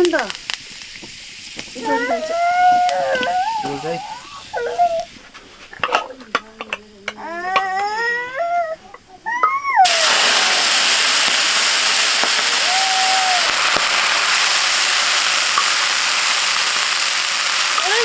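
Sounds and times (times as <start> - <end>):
food frying in hot oil: 0.0 - 5.2, 9.8 - 18.0.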